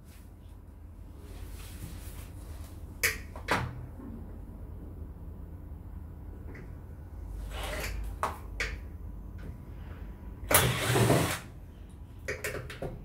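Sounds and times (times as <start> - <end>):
cordless drill spinning screw: 10.5 - 11.4.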